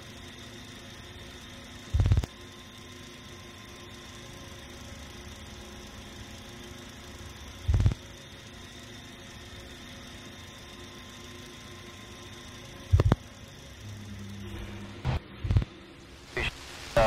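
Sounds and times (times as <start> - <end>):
low drone with hiss: 0.0 - 17.0.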